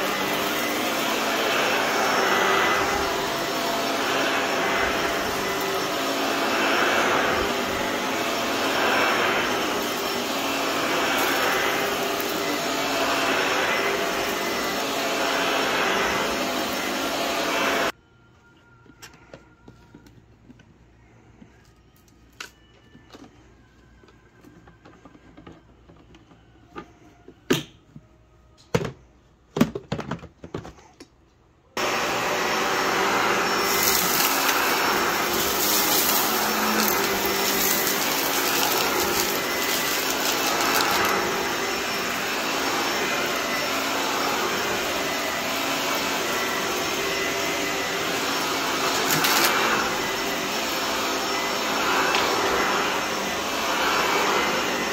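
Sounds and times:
vacuum cleaner running on carpet: 0.0s - 18.0s, 31.8s - 54.9s.

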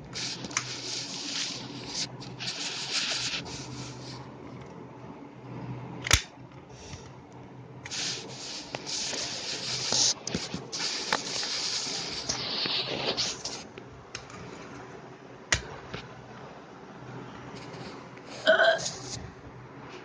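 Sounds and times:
toy car rubbing and scraping: 0.2s - 4.2s, 7.9s - 13.7s.

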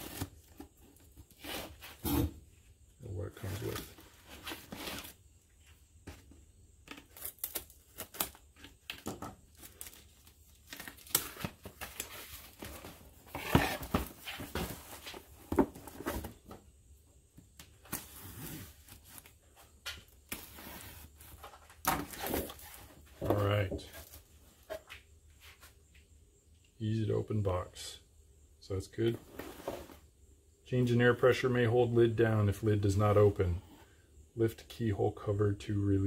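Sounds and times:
shrink-wrap crinkling and tearing: 6.9s - 8.9s, 9.5s - 12.3s.

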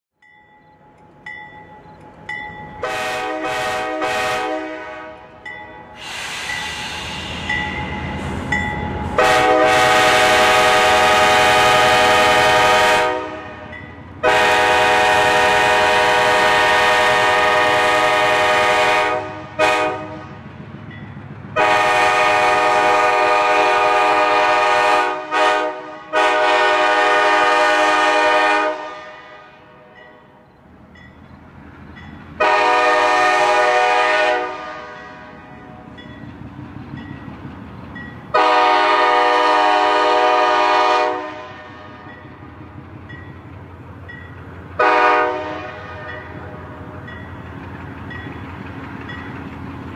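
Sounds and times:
train rumble: 0.2s - 49.9s
locomotive air horn blasts: 2.8s - 5.4s, 9.2s - 20.4s, 21.6s - 29.9s, 32.4s - 35.8s, 38.3s - 42.2s, 44.8s - 46.8s.

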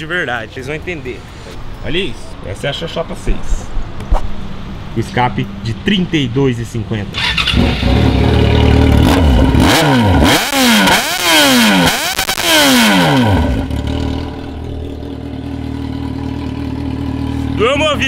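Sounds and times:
motorcycle engine revving: 7.1s - 18.0s
motorcycle engine idling: 7.2s - 9.6s, 13.5s - 18.0s.

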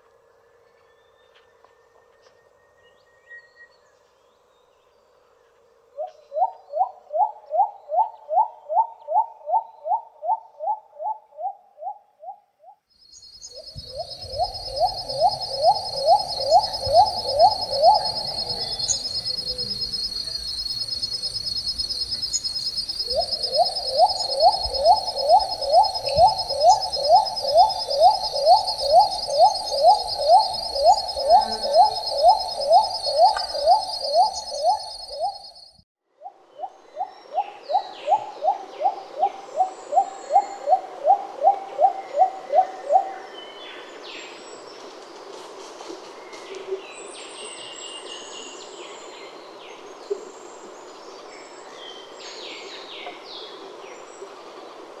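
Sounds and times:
high insect drone: 13.0s - 35.8s
dove calling: 13.5s - 35.5s.

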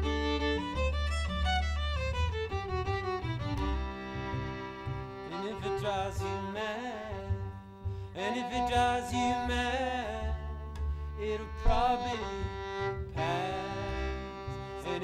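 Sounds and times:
bowed violin: 0.0s - 15.0s
double bass: 0.0s - 15.0s
man singing: 5.2s - 7.6s, 8.2s - 10.6s, 11.2s - 15.0s.

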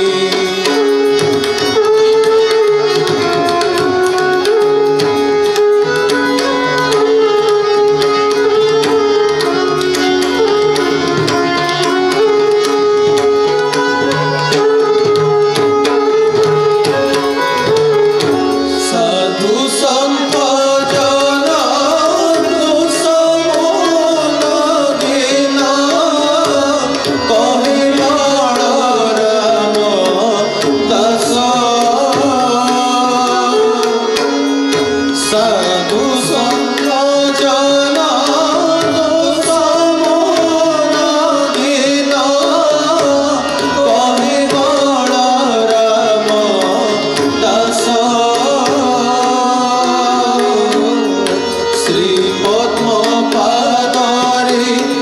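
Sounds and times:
man singing: 0.0s - 2.4s, 18.7s - 55.0s
harmonium notes: 0.0s - 55.0s
tabla playing: 0.0s - 55.0s.

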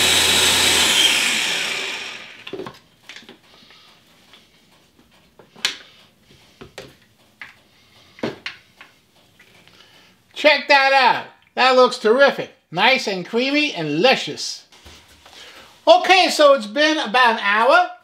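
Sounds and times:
blender motor spinning down: 0.0s - 2.6s.

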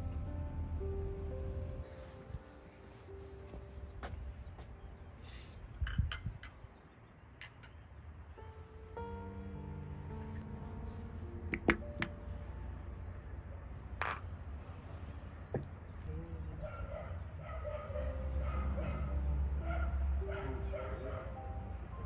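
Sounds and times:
glasses and saucer clinking: 14.0s - 14.3s
dog yipping: 16.6s - 19.0s, 19.6s - 21.3s.

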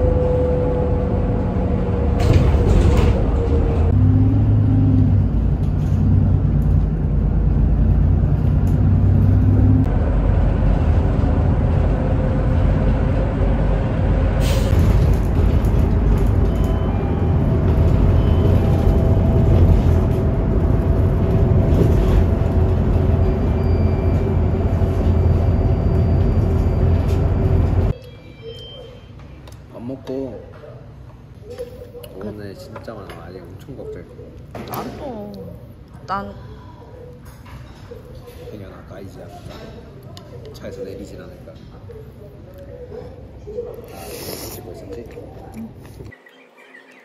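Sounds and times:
car road and engine rumble: 0.0s - 28.0s.

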